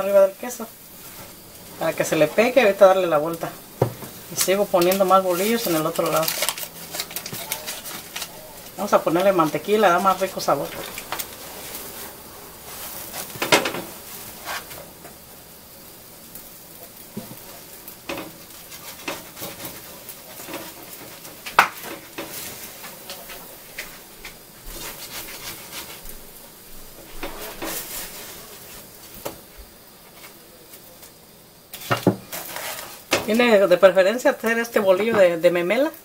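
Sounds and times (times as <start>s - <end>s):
faint sizzle on griddle: 0.0s - 36.0s
spatula tapping and scraping: 3.3s - 15.2s, 18.0s - 26.2s, 27.0s - 28.3s, 31.8s - 33.4s.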